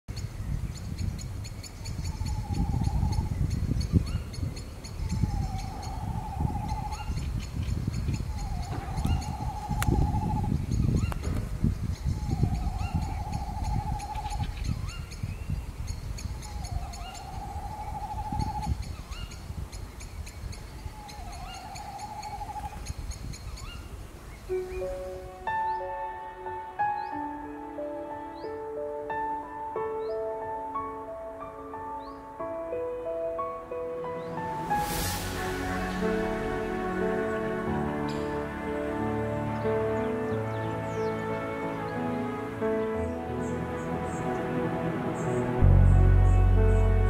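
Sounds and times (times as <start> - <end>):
owl hooting: 8.3 - 11.2
steady low rumble: 34.0 - 38.8, 44.0 - 47.0.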